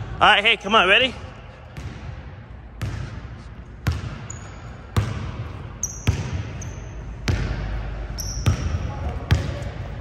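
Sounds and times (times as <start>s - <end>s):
basketball bouncing in gym: 1.1s - 10.0s
shoe squeaks: 4.2s - 4.9s, 5.8s - 7.2s, 8.1s - 9.2s.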